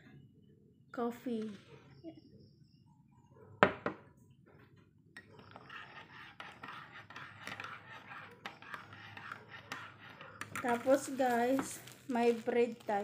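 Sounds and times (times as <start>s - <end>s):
spoon stirring coffee in a mug: 5.2s - 13.0s.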